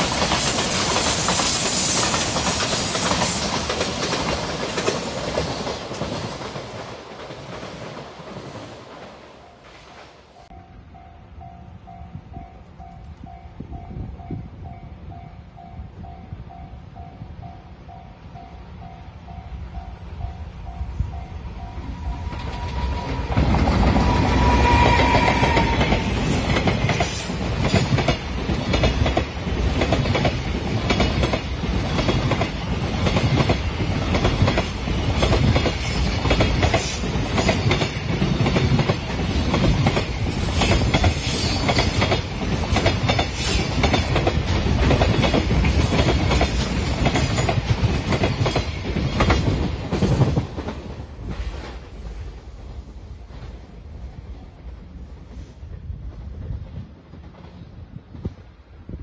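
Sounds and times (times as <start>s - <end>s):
freight train rumbling: 0.0s - 59.0s
wheels clicking over rail joints: 25.6s - 51.8s.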